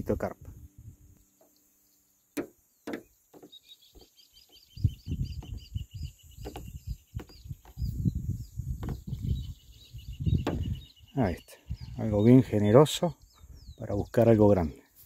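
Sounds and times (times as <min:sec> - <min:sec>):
bird chirping: 0:00.8 - 0:15.0
low rumbling bumps: 0:04.8 - 0:10.9.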